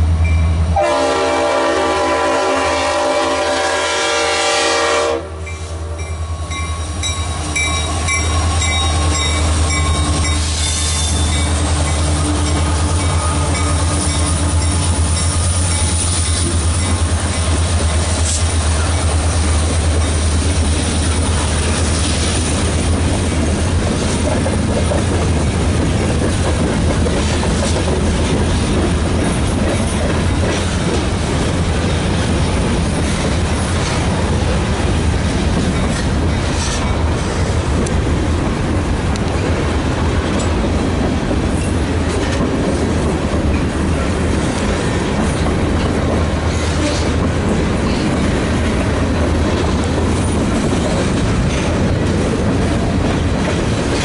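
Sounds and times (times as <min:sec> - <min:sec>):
crossing bell ringing: 0:00.2 - 0:00.9, 0:05.4 - 0:18.1
locomotive horn: 0:00.8 - 0:06.0
locomotive engine rumble: 0:05.4 - 0:54.0
train wheels clattering on rails: 0:05.5 - 0:54.0.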